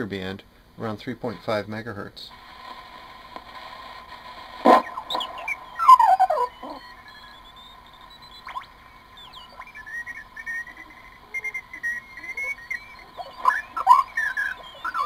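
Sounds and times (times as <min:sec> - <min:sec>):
steady radio whistle: 0:02.3 - 0:15.0
radio heterodyne whistles sliding: 0:02.5 - 0:15.0.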